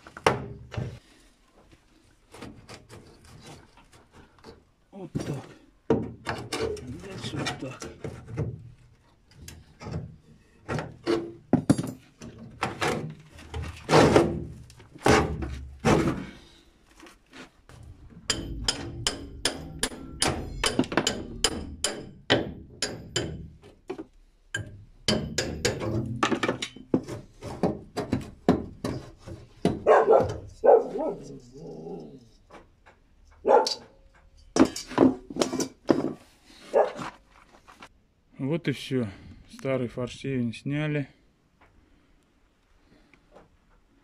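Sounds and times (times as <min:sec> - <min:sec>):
pry bar knocking on metal: 0:18.3 - 0:23.6, 0:24.6 - 0:26.8.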